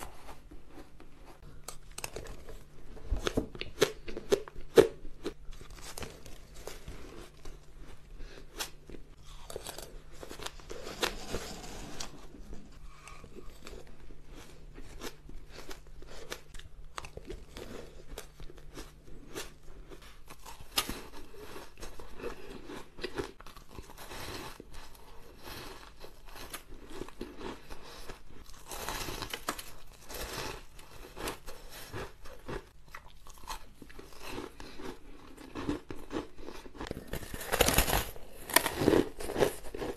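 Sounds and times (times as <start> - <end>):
crunching shaved ice: 33.2 - 39.9.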